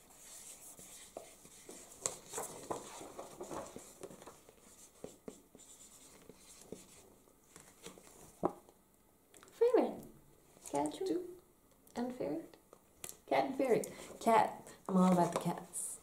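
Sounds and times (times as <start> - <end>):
paper rustling: 0.1 - 8.6.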